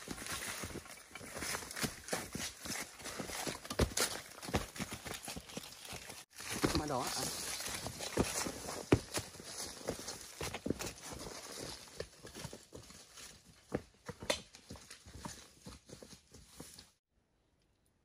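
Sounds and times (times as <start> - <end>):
footsteps on dirt trail: 0.0 - 17.0
leaves and ferns brushing: 4.7 - 11.8.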